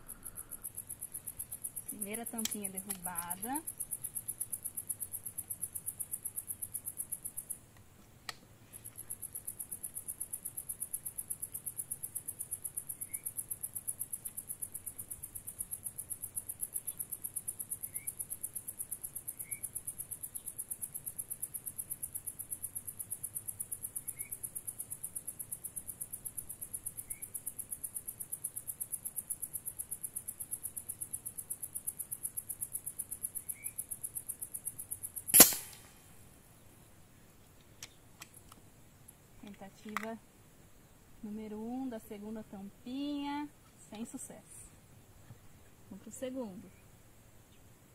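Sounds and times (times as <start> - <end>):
air rifle shot: 35.3 - 36.0.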